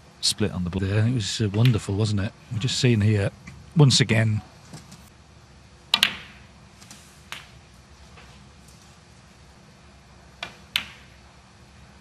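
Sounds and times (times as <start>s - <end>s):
snooker balls clicking: 1.5s - 1.9s, 5.9s - 8.4s, 10.4s - 11.2s.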